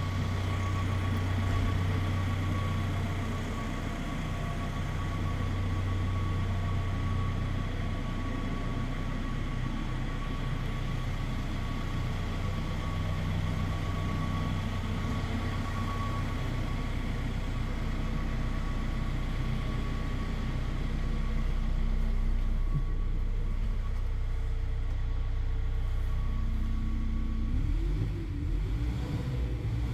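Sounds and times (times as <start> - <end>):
diesel engine idling: 0.0 - 29.9.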